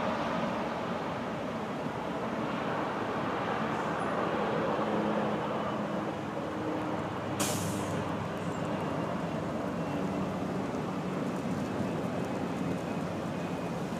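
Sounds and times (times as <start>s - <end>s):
distant helicopter rumble: 0.0s - 13.9s
road traffic noise: 0.0s - 13.9s
short sharp hiss: 7.4s - 8.0s.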